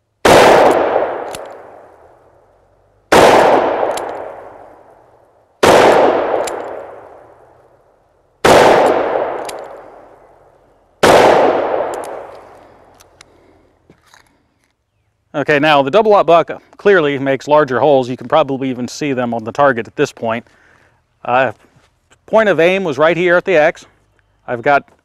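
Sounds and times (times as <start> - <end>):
revolver shots echoing: 0.2 - 2.0, 3.1 - 4.9, 5.6 - 7.4, 8.4 - 10.1, 11.0 - 12.3.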